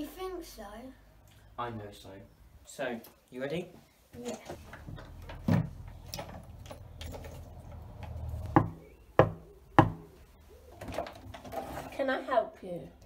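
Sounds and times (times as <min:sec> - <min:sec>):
knocking on glass door: 0:08.6 - 0:10.0.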